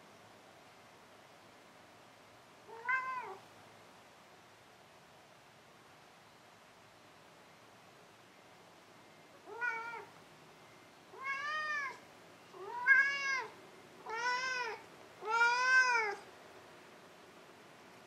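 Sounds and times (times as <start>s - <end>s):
cat meowing: 2.7s - 3.4s, 9.4s - 10.1s, 11.1s - 12.0s, 12.6s - 16.2s.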